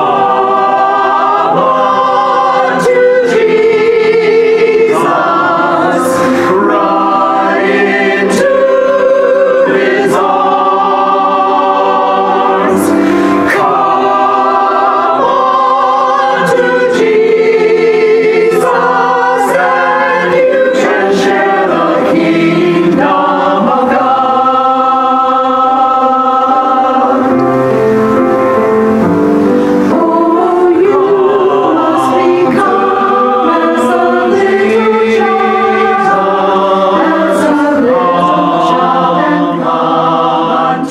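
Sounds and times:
mixed choir singing: 0.0 - 40.9.

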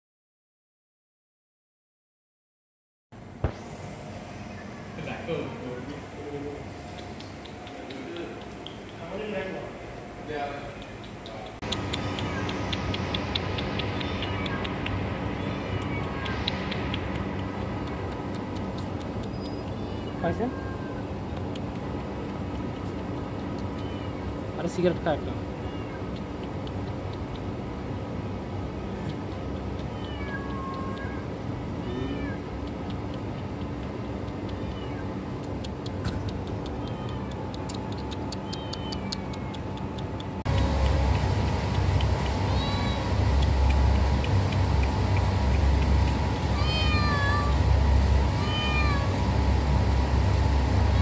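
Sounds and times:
kitten meowing: 11.7 - 16.9, 19.3 - 21.1, 23.7 - 24.3, 25.6 - 26.2, 29.8 - 32.5, 34.4 - 35.1, 36.6 - 37.7, 38.3 - 39.6, 42.5 - 43.1, 46.5 - 47.6, 48.4 - 49.2.

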